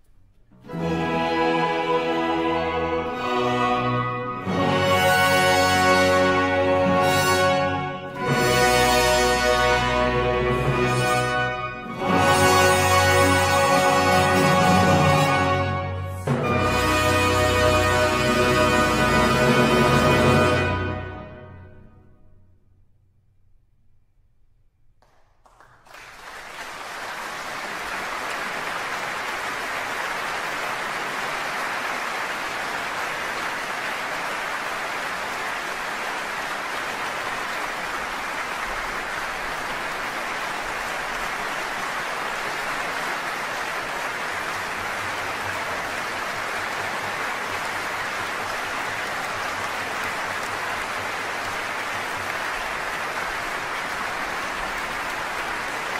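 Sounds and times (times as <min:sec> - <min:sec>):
audience applause: 0:25.0 - 0:55.9.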